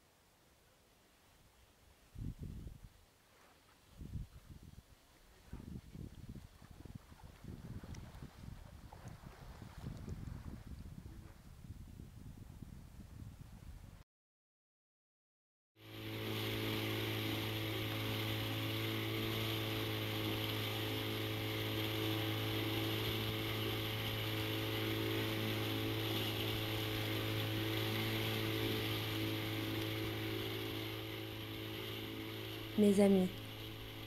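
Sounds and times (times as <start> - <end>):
motorboat engine humming: 15.8 - 34.0.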